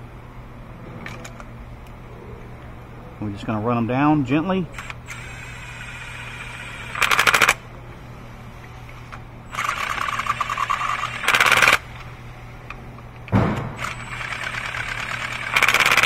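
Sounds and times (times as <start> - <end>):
cordless impact gun clattering: 9.5 - 11.8, 13.3 - 16.0.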